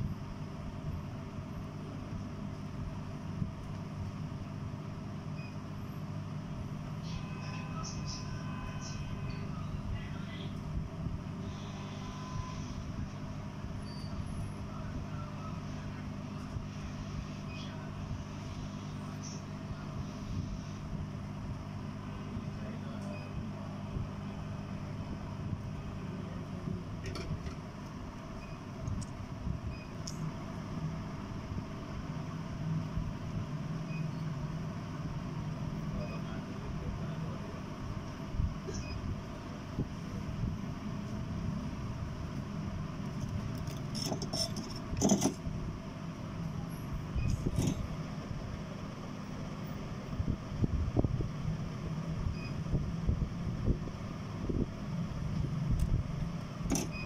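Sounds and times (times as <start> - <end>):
low background hum: 0.0 - 57.0.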